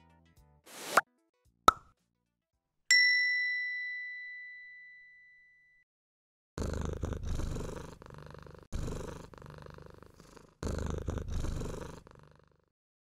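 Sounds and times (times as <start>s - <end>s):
cat purring: 6.6s - 12.7s.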